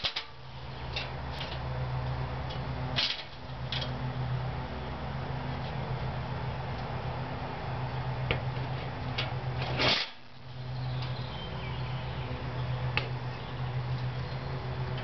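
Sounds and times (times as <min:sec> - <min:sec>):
rustle in wire trap: 0:00.0 - 0:01.6, 0:02.9 - 0:03.9, 0:09.2 - 0:10.3
steady low hum: 0:00.0 - 0:15.0.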